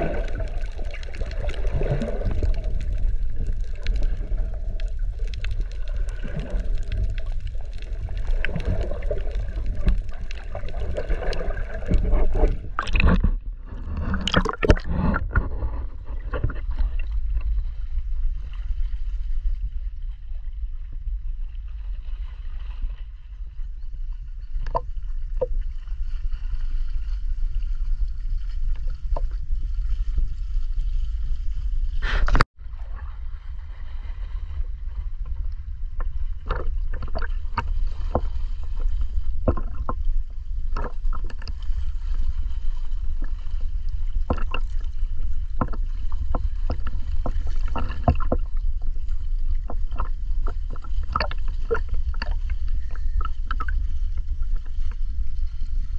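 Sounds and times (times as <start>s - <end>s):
clicks and crackles: 0.0s - 17.5s, 40.7s - 41.8s, 44.2s - 54.3s
underwater low rumble: 0.0s - 55.9s.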